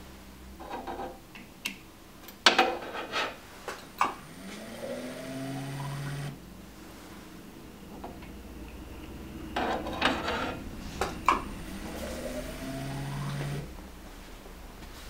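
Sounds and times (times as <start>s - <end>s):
pump motor whine: 4.0s - 14.0s.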